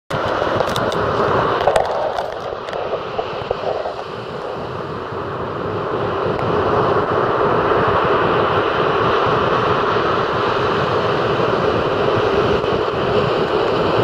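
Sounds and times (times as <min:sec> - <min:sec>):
crackles: 0:00.1 - 0:05.2
surf breaking on beach: 0:00.1 - 0:14.0.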